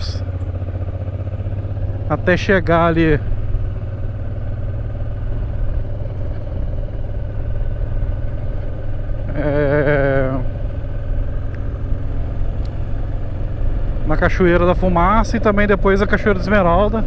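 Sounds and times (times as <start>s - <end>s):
motorcycle engine rumble: 0.0s - 17.0s
person's voice: 2.1s - 3.2s, 9.3s - 10.5s.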